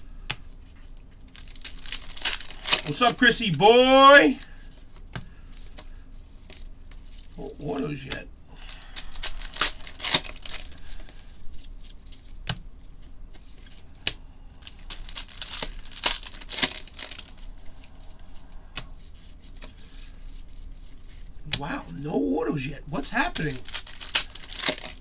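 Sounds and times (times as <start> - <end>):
wrapper tearing and crinkling: 0.8 - 4.5, 8.6 - 11.2, 14.6 - 17.6, 23.4 - 25.0.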